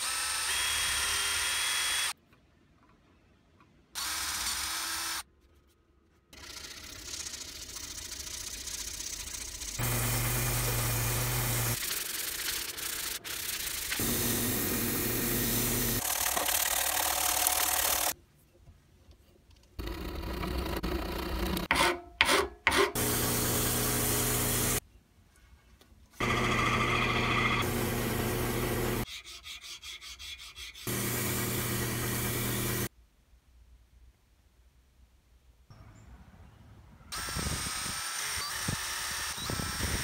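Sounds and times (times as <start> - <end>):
lathe motor hum: 9.8 - 11.8, 26.2 - 29.0, 30.9 - 32.9.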